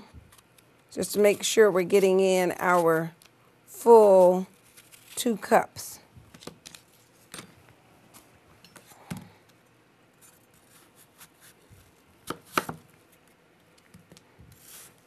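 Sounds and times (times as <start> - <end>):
knife cutting apple on wooden board: 12.2 - 12.8.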